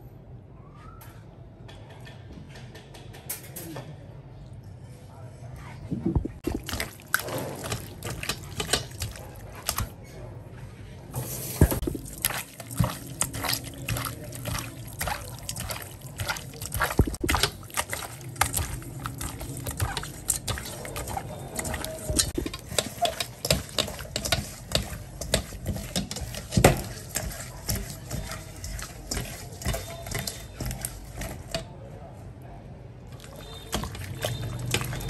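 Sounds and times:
water splashing and dripping: 6.4s - 9.9s, 11.6s - 31.4s, 33.1s - 35.0s.

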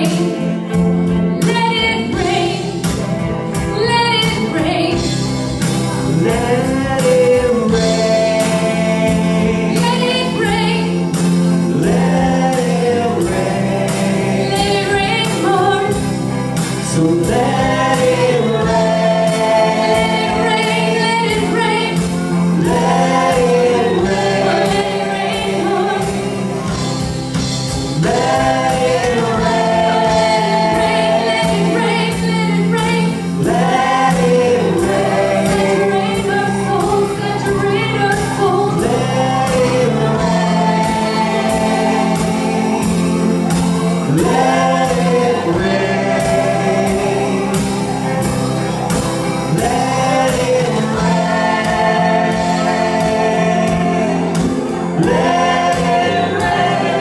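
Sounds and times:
band chords and beat: 0.0s - 57.0s
electric guitar: 0.0s - 57.0s
voices singing: 0.0s - 57.0s.

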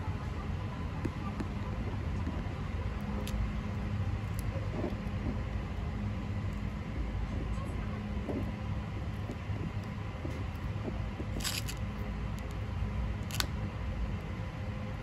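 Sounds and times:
low background rumble: 0.0s - 15.0s
tortoises biting leafy greens: 9.6s - 13.5s.

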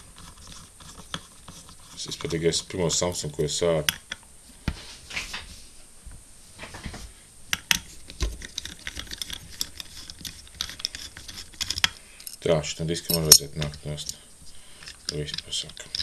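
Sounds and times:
screwdriver clicking on metal: 13.1s - 14.2s.

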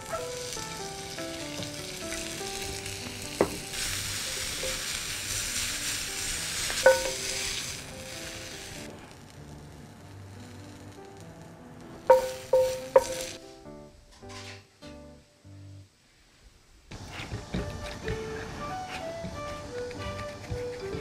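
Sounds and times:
chili peppers sizzling in a pan: 0.0s - 16.3s
wooden spatula clacking on pan: 6.7s - 7.6s, 12.1s - 13.4s.

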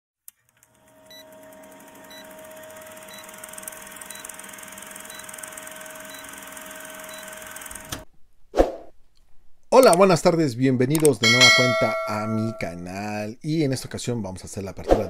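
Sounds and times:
film projector whirring: 0.3s - 8.1s.

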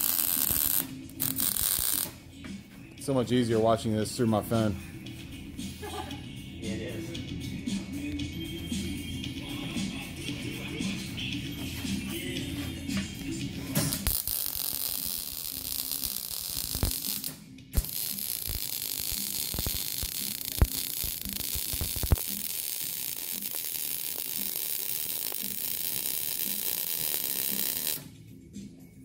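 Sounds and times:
welding arc crackling and hissing: 0.0s - 2.1s, 13.9s - 28.1s
sharp spatter pops: 13.8s - 22.7s.

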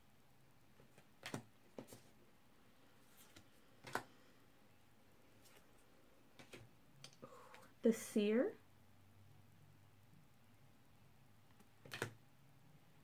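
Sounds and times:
cards clicking and tapping: 0.8s - 2.1s, 3.1s - 4.2s, 6.3s - 6.7s, 11.5s - 12.2s.

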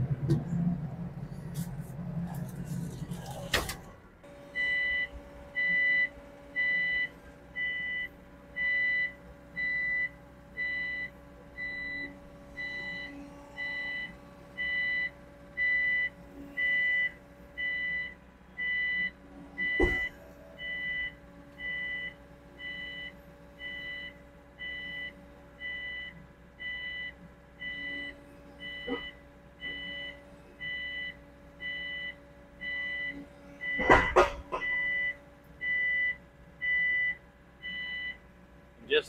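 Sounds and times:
excavator engine running: 0.0s - 39.0s
metal clunk: 33.7s - 34.8s.

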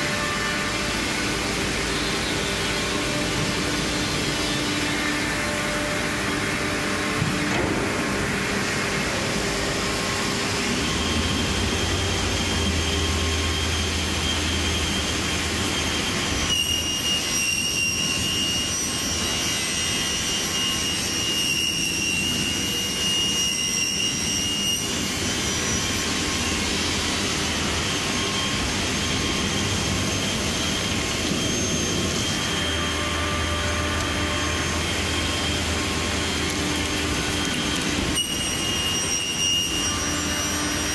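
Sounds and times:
high whining tones: 0.0s - 40.9s
panel saw running: 0.0s - 40.9s.

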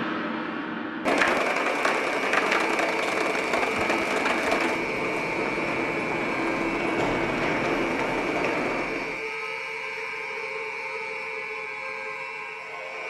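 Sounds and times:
small wheels rattling on tile: 1.1s - 9.2s.

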